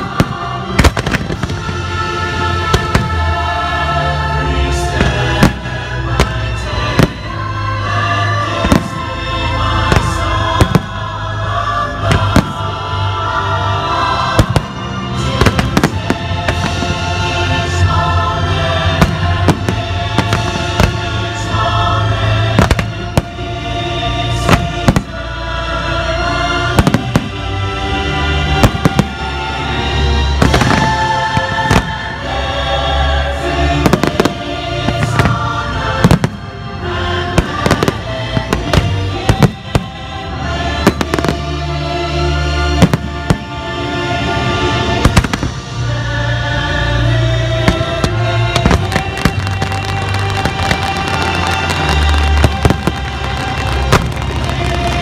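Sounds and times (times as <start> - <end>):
fireworks bursting: 0.0 - 3.6, 4.9 - 7.6, 8.3 - 11.2, 12.0 - 12.8, 14.2 - 23.6, 24.2 - 25.4, 26.7 - 27.6, 28.4 - 32.4, 33.4 - 36.6, 37.2 - 41.7, 42.7 - 43.6, 44.5 - 45.8, 47.5 - 55.0
loud show music: 0.0 - 55.0.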